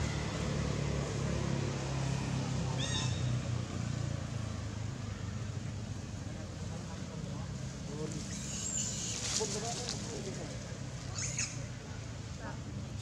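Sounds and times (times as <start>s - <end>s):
monkey squealing: 8.2s - 9.3s, 11.1s - 11.7s.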